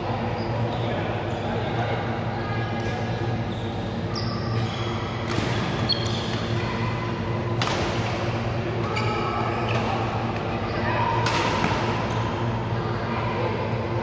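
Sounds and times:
steady low hum: 0:00.0 - 0:14.0
rackets striking shuttlecock: 0:07.5 - 0:09.0, 0:11.2 - 0:11.9.

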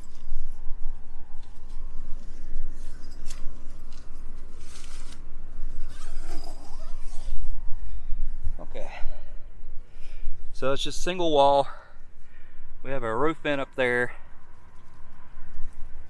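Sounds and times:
wind rumble on microphone: 0:00.0 - 0:11.4, 0:14.1 - 0:16.0
tent mesh door rustling: 0:01.6 - 0:07.6.

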